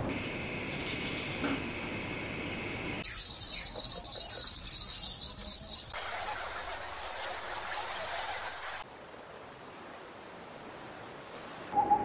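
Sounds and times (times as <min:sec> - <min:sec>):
insects buzzing: 0:00.1 - 0:06.0
insects hissing chatter: 0:00.1 - 0:06.0
insect trill of rapid pulses: 0:00.1 - 0:06.4.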